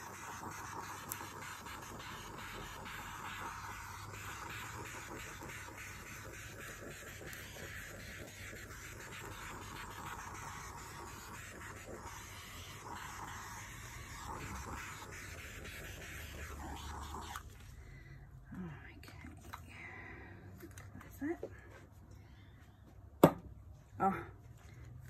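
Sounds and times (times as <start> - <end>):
torch flame hissing: 0.0 - 17.5.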